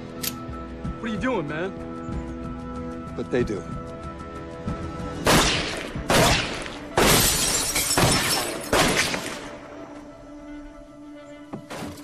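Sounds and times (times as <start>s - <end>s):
pistol shots: 5.2s - 9.6s
glass shattering: 7.0s - 9.2s.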